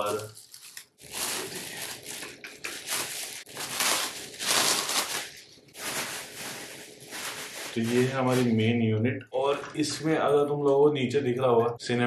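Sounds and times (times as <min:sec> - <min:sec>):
plastic wrapping crinkling: 0:00.0 - 0:08.7.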